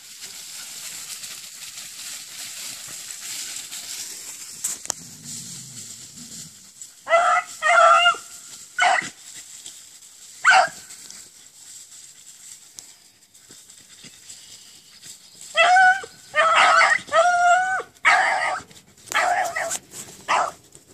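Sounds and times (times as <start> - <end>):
hounds baying: 5.3 - 9.2, 10.4 - 10.9, 15.4 - 20.6.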